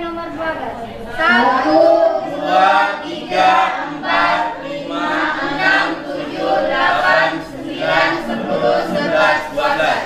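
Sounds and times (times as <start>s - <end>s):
group of voices counting aloud: 1.1s - 10.0s.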